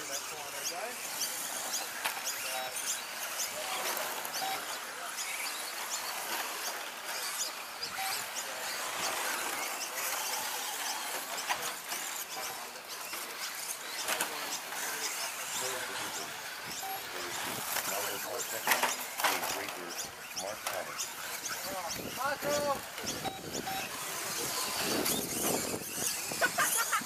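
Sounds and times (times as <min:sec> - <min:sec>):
faint motor whines: 0:00.0 - 0:27.0.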